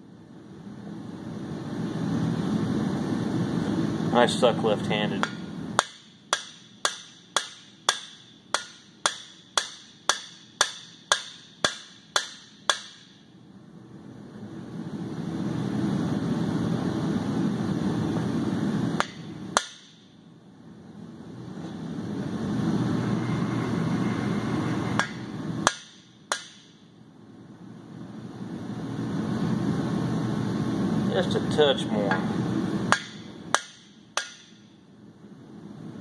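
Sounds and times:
hammer striking metal bar: 5.2s - 13.2s, 19.0s - 20.0s, 25.0s - 26.8s, 32.9s - 34.7s.

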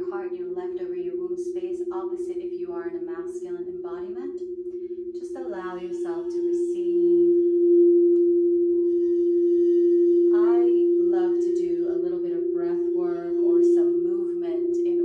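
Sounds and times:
woman's voice: 0.0s - 4.4s, 5.2s - 7.4s, 10.3s - 15.0s
crystal singing bowl ringing: 0.0s - 15.0s.

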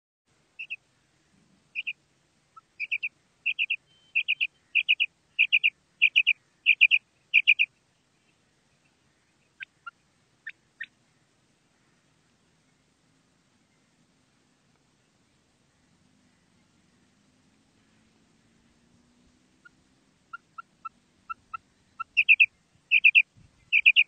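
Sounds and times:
quail calling: 0.6s - 0.8s, 1.8s - 7.8s, 8.8s - 11.0s, 19.6s - 24.0s.

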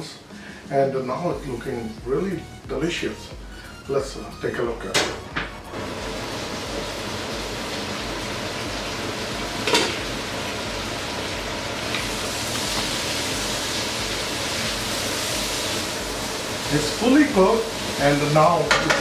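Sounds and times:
vegetables sizzling in a pan: 5.7s - 19.0s.

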